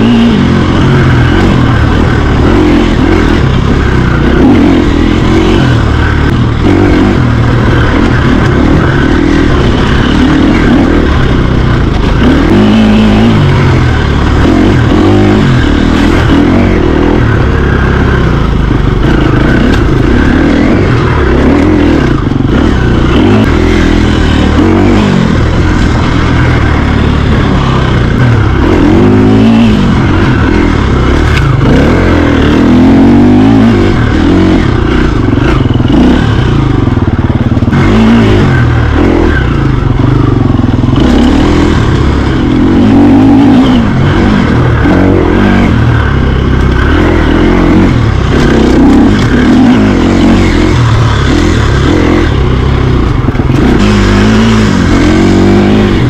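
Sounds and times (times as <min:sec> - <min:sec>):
rattles and scrapes: 0:00.0 - 0:37.9
low hum: 0:00.0 - 0:56.0
mountain bike riding noise: 0:00.0 - 0:56.0.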